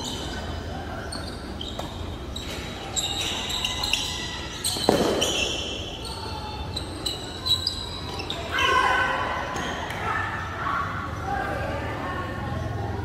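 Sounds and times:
sneakers squeaking on floor: 0.0s - 10.2s.

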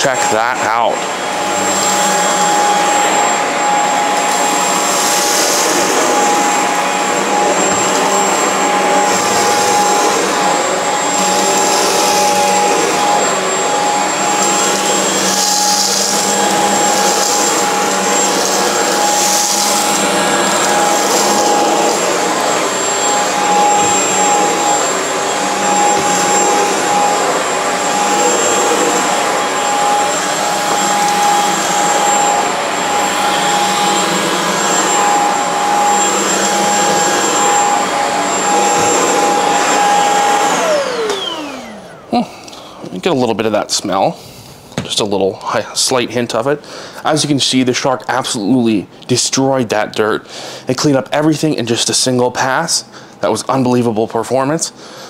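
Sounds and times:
stick vacuum running on carpet: 0.0s - 44.0s.

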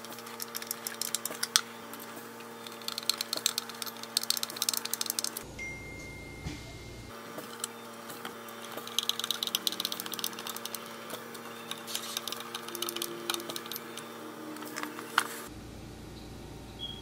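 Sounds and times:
screwdriver clicks and ticks: 0.0s - 1.7s, 2.6s - 5.4s, 8.6s - 15.3s.

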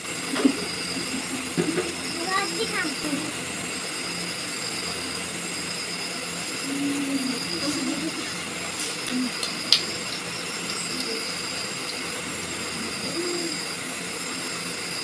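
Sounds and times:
faint high whine: 0.0s - 15.0s
soft murmuring voices: 6.5s - 13.8s.

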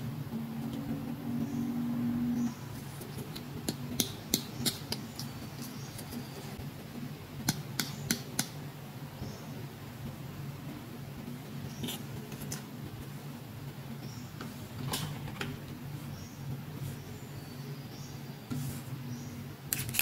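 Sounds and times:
louder low hum: 0.0s - 3.0s
low steady hum: 0.0s - 20.0s.

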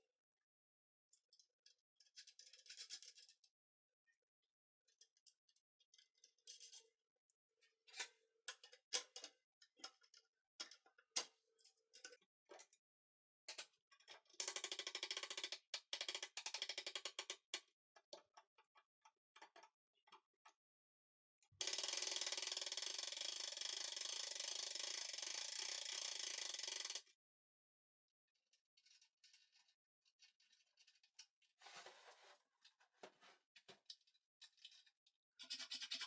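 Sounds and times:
rapid ratchet clicking: 21.6s - 27.0s.

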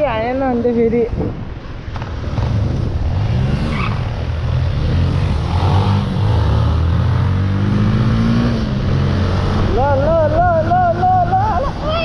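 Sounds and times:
road noise: 0.0s - 12.0s.

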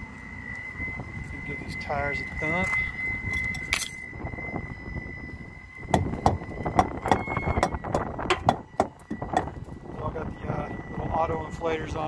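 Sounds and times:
faint high whine: 0.0s - 12.0s
tires being thumped: 5.9s - 9.6s.

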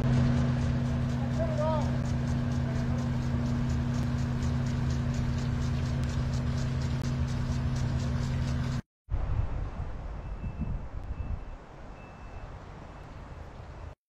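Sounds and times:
fast even ticking: 0.0s - 8.8s
motor humming: 0.0s - 8.8s.

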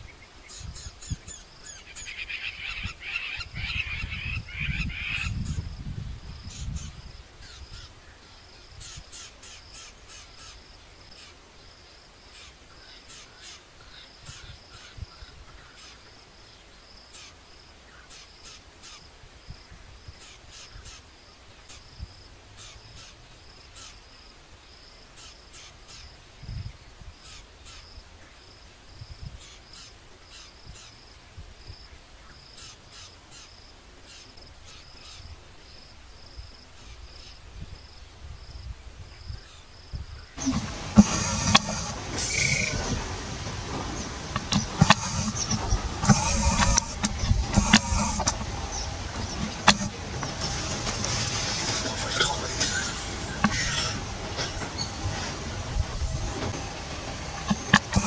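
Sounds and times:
low wind rumble: 0.0s - 9.1s, 37.0s - 58.0s
high insect whine: 37.8s - 58.0s.

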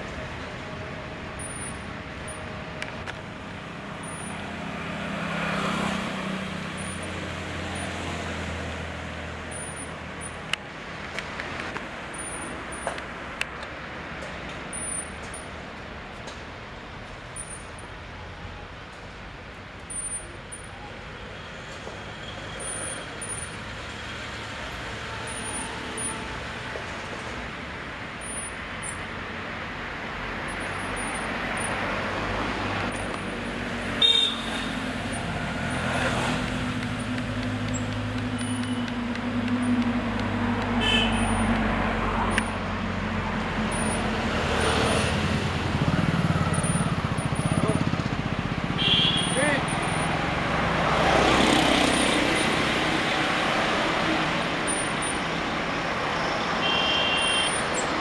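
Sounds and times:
road traffic: 0.0s - 58.0s
vehicle engine hum: 0.0s - 58.0s
car horn toots: 34.0s - 34.8s, 40.8s - 41.4s, 48.8s - 50.0s, 56.6s - 57.6s.

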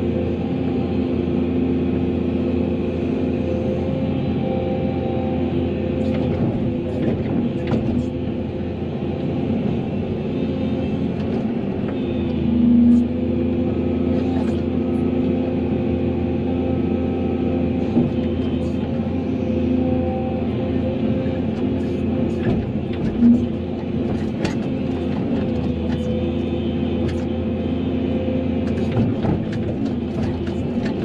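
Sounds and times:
excavator diesel engine running: 0.0s - 31.0s
hydraulics working: 17.6s - 31.0s.

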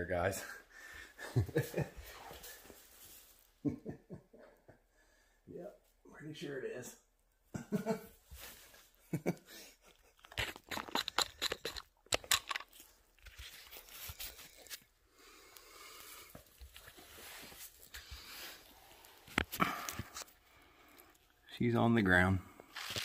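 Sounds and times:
crunching clicks: 10.2s - 12.8s.

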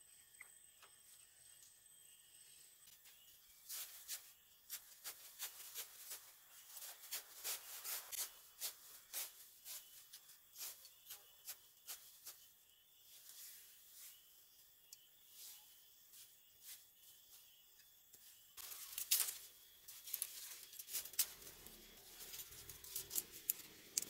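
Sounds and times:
dry grass and twigs crackling: 2.9s - 14.2s, 18.2s - 24.0s.

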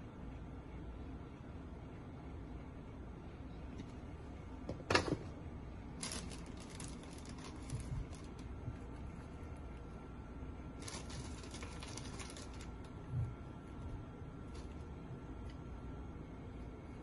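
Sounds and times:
low steady hum: 0.0s - 17.0s
crackling rustles: 5.8s - 9.9s, 10.8s - 15.6s.

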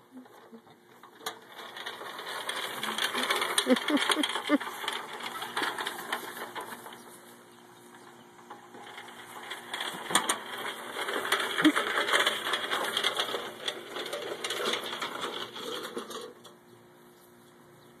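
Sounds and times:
tiller clattering and rattling: 0.0s - 16.8s.

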